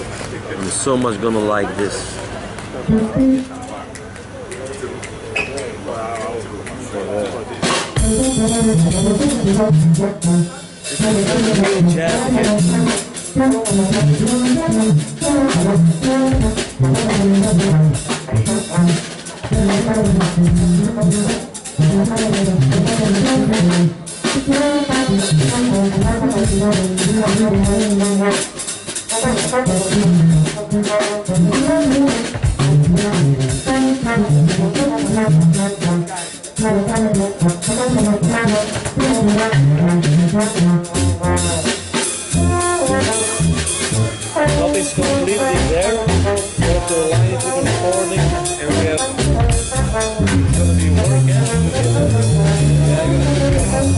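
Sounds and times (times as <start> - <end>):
busy drumming: 0.0 - 53.9
trombone melody: 2.9 - 3.6, 8.0 - 53.9.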